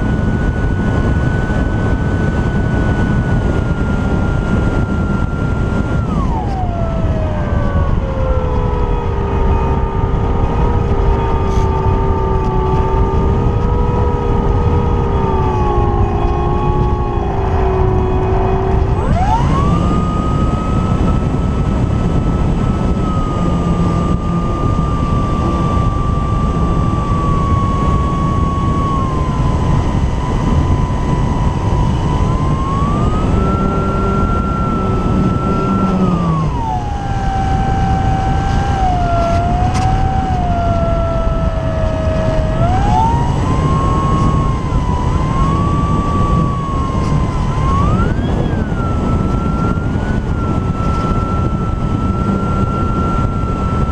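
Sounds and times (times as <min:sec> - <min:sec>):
electric motor propeller whine: 0:00.0 - 0:53.9
wind rush: 0:00.0 - 0:53.9.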